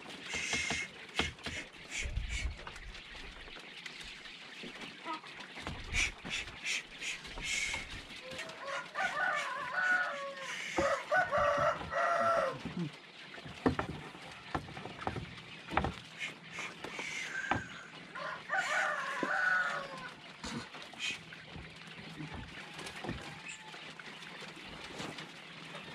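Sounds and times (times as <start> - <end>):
wooden boards knocking and rattling: 0.0 - 1.8, 4.6 - 6.5, 10.7 - 17.8, 21.5 - 23.7
rooster crowing: 8.4 - 12.6, 18.2 - 20.1.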